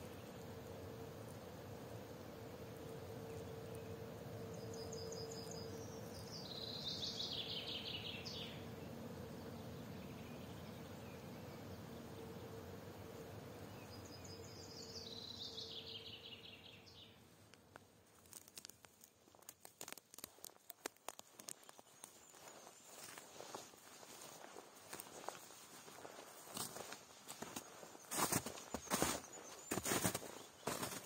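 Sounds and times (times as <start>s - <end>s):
faint hum: 0.0s - 19.6s, 21.4s - 31.0s
songbird singing: 0.0s - 31.0s
footsteps on forest floor: 17.4s - 31.0s.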